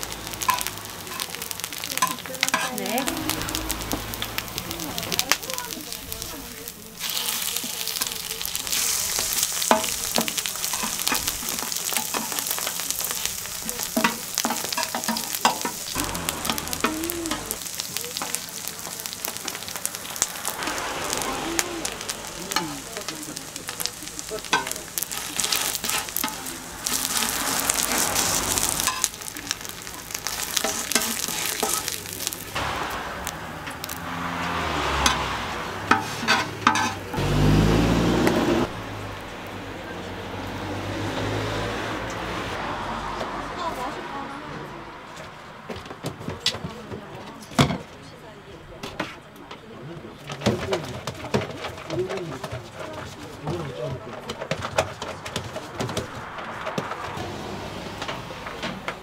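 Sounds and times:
food sizzling on griddle: 0.0 - 39.3.

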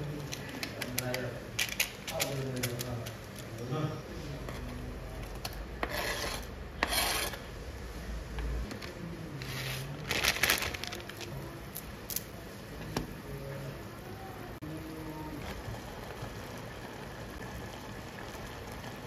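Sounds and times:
broth boiling in a pot: 0.0 - 19.0
scraping on a cutting board: 5.8 - 7.5.

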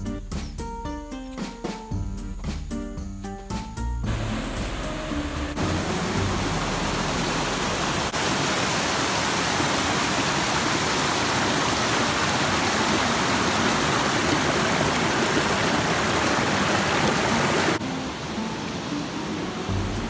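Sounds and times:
whitewater rushing over boulders: 5.6 - 20.0.

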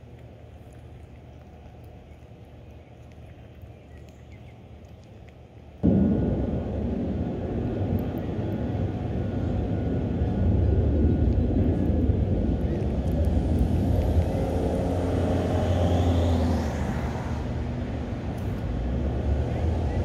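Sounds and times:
low outdoor rumble: 0.0 - 20.0
faint rising whine: 5.8 - 20.0.

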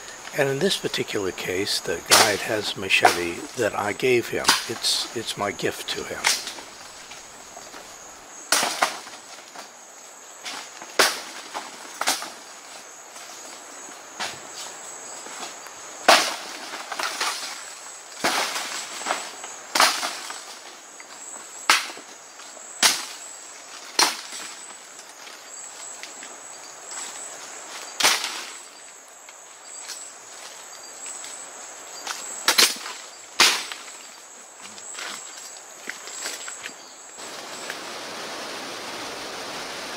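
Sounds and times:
leaves and stems rustling: 0.0 - 39.9
machete chopping undergrowth: 8.5 - 9.3, 32.5 - 33.9.

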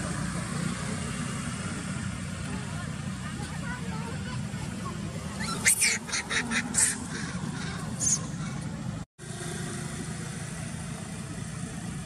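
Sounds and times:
baby monkey screeching: 5.4 - 8.6.

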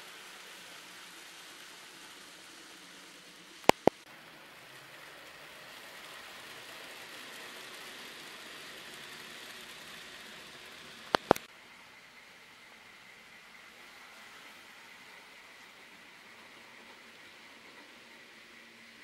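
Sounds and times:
model train whirring: 0.0 - 19.0
sharp clicks: 3.6 - 4.0, 11.1 - 11.5.

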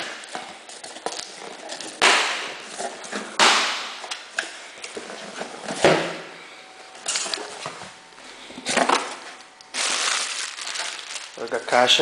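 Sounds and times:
packing tape tearing off cardboard: 8.8 - 11.7.

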